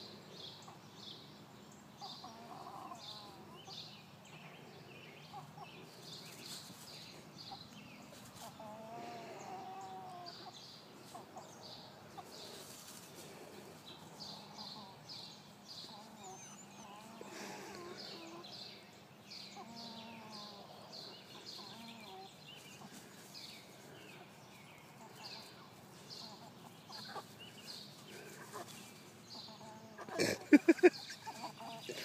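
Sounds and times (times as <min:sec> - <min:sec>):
chicken clucking: 0:15.8 - 0:18.5, 0:21.3 - 0:32.0.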